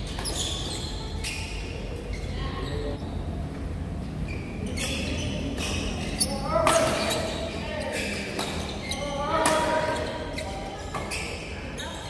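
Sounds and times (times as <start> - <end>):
steady low hum: 0.0 - 10.8
rackets hitting shuttlecock: 6.6 - 7.3, 8.2 - 8.7, 9.3 - 10.1.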